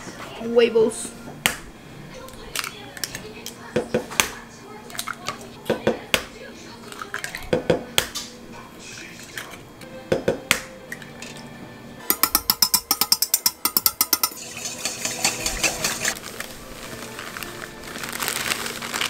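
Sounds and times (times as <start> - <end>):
egg cracking on bowl: 12.1 - 14.4
whisk clicking in metal bowl: 12.1 - 16.2.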